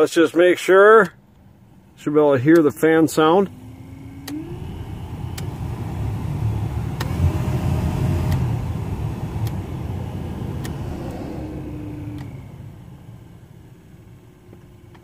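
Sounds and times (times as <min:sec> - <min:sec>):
faint motor whine: 0:01.3 - 0:15.0
blower fan air rush: 0:03.5 - 0:14.2.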